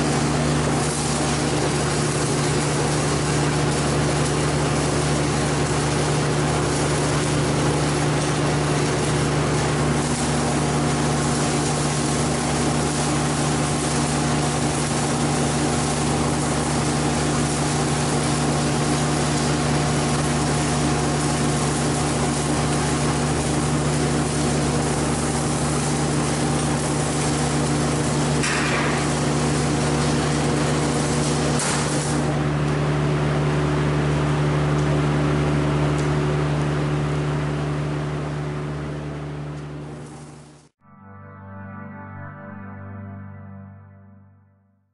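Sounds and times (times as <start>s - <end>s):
welding arc hissing: 0.1s - 32.3s.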